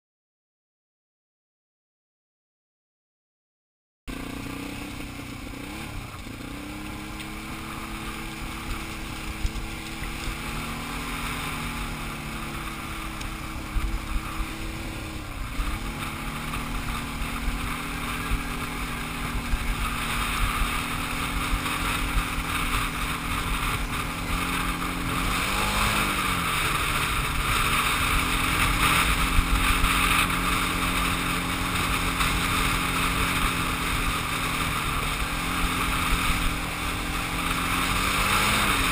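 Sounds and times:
atv engine running: 0:04.1 - 0:38.9
rushing noise: 0:04.2 - 0:38.9
scattered ticks: 0:06.0 - 0:14.5.

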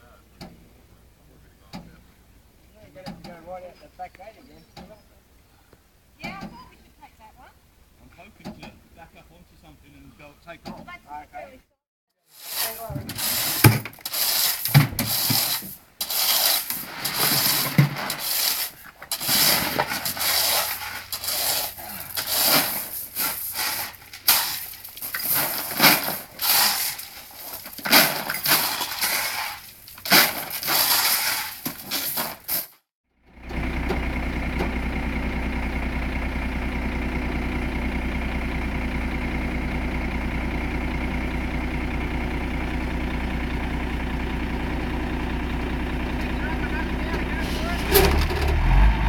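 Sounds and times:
scraping and rubbing: 0:12.3 - 0:32.8, 0:47.4 - 0:49.0
truck engine idling: 0:16.9 - 0:27.8, 0:33.2 - 0:49.0.

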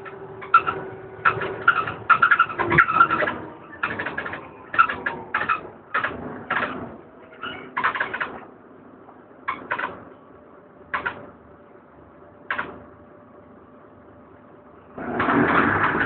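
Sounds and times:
high squeaks: 0:00.0 - 0:08.4
bus engine hum: 0:00.0 - 0:16.0.

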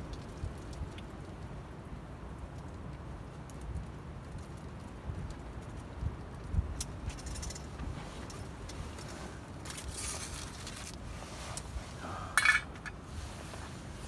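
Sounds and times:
metal pot and utensils clinking: 0:12.4 - 0:13.0.

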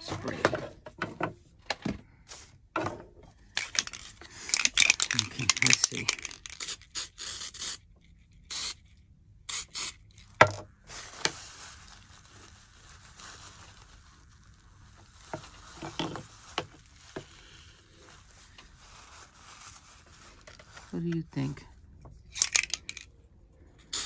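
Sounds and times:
aerosol spray can hissing: 0:06.5 - 0:07.8, 0:08.5 - 0:08.8, 0:09.5 - 0:10.1
faint rubbing and scraping: 0:10.8 - 0:21.0.

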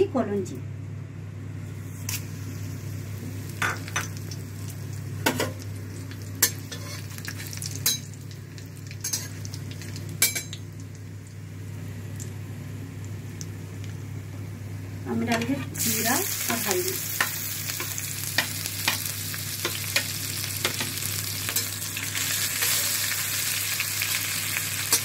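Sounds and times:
spices sizzling in hot oil: 0:01.8 - 0:12.4, 0:15.1 - 0:25.0.

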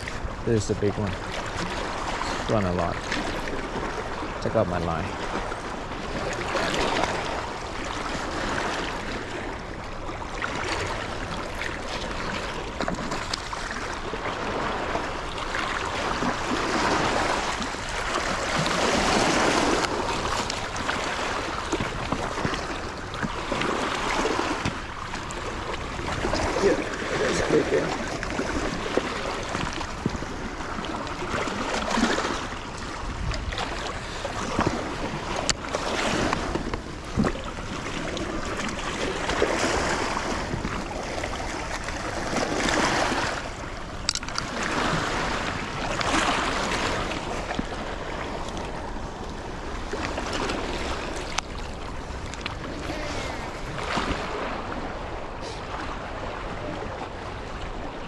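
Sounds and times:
river water surging: 0:13.6 - 0:32.9
wind buffeting microphone: 0:15.8 - 0:43.8.

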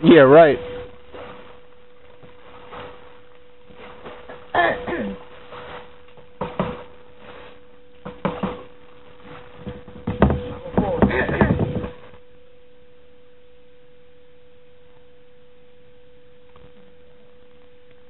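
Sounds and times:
steady humming tone: 0:00.0 - 0:18.0
person coughing: 0:04.3 - 0:05.2.

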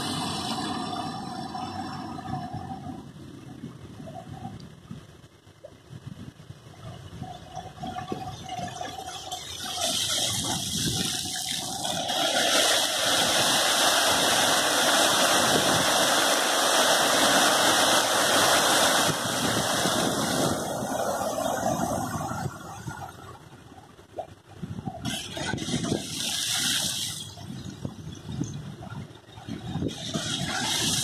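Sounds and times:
fountain jets splashing into pool: 0:07.3 - 0:24.3, 0:25.0 - 0:28.0, 0:28.8 - 0:31.0.

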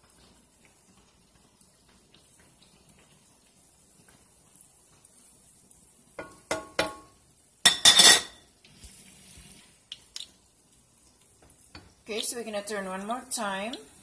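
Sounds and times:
food sizzling in hot oil: 0:00.0 - 0:14.0
metal utensil clinking cookware: 0:07.7 - 0:08.4.

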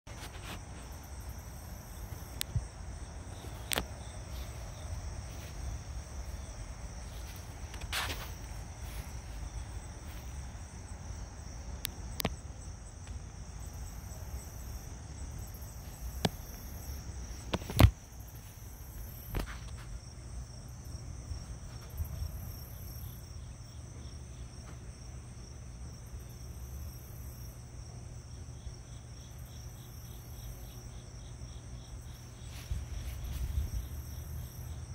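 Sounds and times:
insects chirping: 0:00.1 - 0:34.9.

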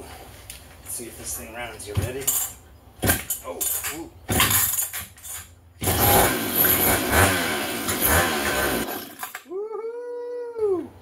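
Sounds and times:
chainsaw engine running roughly: 0:05.8 - 0:09.3.

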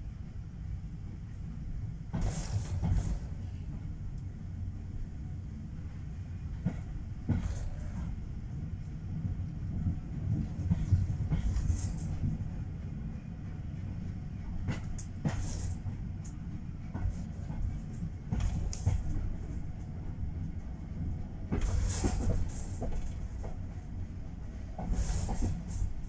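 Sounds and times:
railway carriage rumbling on track: 0:00.0 - 0:26.0.

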